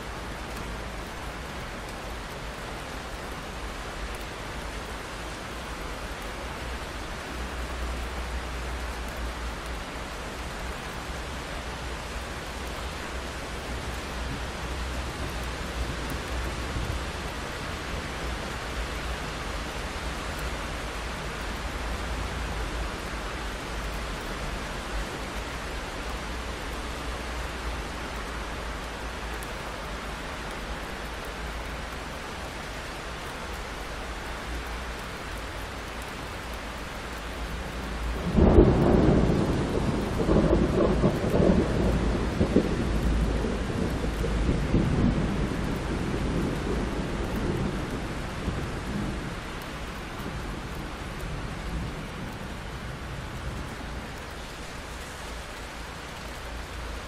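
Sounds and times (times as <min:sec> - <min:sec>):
steady rain: 0:00.0 - 0:57.0
rolling thunderclap: 0:38.2 - 0:49.3.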